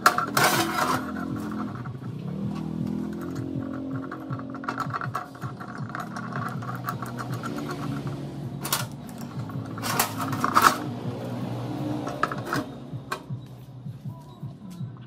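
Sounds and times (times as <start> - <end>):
metal clanks on steel plate: 0.0 - 2.1, 3.0 - 10.9.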